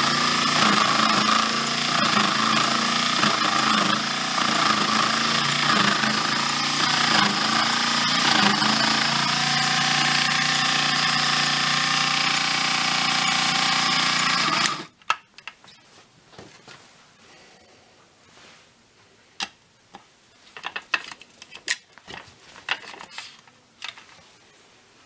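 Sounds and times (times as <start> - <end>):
drill bit boring into wood: 0.0 - 14.9
small motor whining: 0.0 - 14.9.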